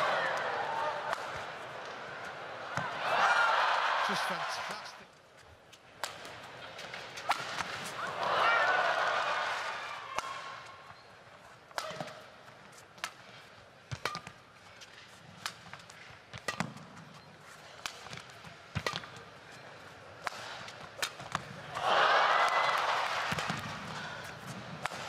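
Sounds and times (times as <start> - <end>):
crowd cheering: 0.0 - 5.0, 7.3 - 10.7, 21.7 - 25.0
racket striking shuttlecock: 0.3 - 1.6, 6.0 - 8.2, 10.1 - 10.7, 11.7 - 12.3, 13.0 - 17.2, 17.8 - 19.3, 20.2 - 25.0.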